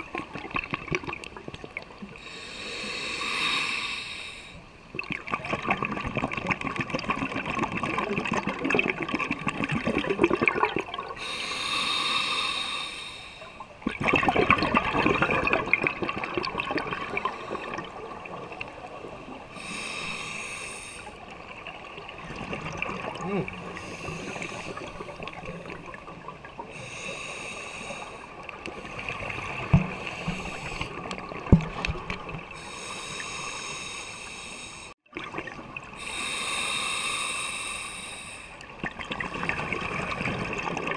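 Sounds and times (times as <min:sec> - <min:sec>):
regulator hissing inhale: 0:02.2 - 0:04.6, 0:11.2 - 0:13.7, 0:17.2 - 0:17.9, 0:19.6 - 0:21.2, 0:23.8 - 0:25.1, 0:26.7 - 0:29.2, 0:29.9 - 0:31.0, 0:32.6 - 0:35.0, 0:36.0 - 0:38.6
rumble of exhaled bubbles: 0:04.9 - 0:11.2, 0:13.8 - 0:19.7, 0:21.2 - 0:26.7, 0:38.7 - 0:40.9.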